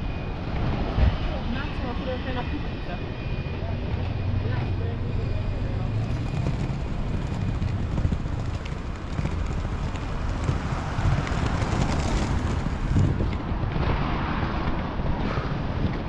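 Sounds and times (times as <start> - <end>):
wind buffeting microphone: 0.0 - 16.0
skate wheels rolling over paving: 4.6 - 16.0.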